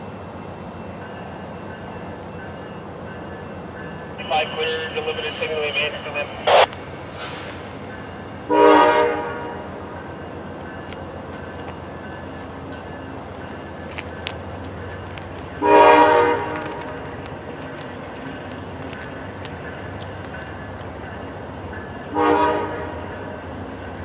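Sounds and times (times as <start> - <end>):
train rumble: 0.0 - 24.0
locomotive air horn blasts: 8.5 - 9.7, 15.6 - 16.8, 22.1 - 23.0.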